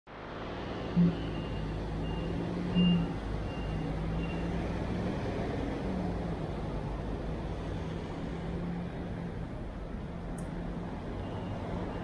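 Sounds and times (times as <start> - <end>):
traffic engine hum and road noise: 0.1 - 12.0
faint high beep: 1.0 - 4.5.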